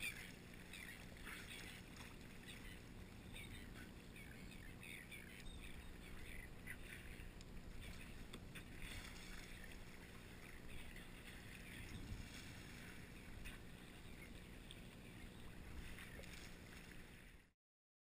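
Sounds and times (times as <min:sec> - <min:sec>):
steady low rumble: 0:00.0 - 0:17.4
water splashing against kayak hull: 0:05.7 - 0:17.4.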